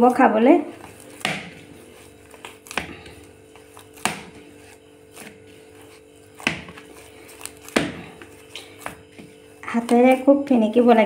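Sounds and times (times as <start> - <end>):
faint hum: 0.0 - 11.0
hands kneading dough: 0.0 - 11.0
dough knocking on plastic plate: 1.2 - 1.7, 4.0 - 4.4, 6.4 - 6.9, 7.6 - 9.3.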